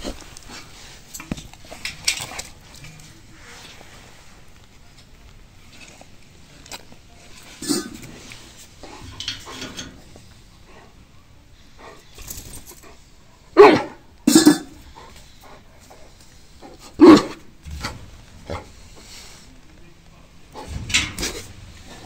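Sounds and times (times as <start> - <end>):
quiet noisy sound: 0.0 - 22.0
dog barking: 13.3 - 14.6, 17.0 - 17.4.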